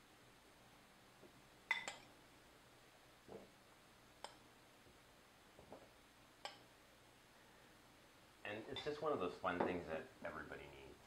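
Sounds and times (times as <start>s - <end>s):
metal spoon clinking on glass: 1.7s - 2.1s, 8.7s - 9.0s.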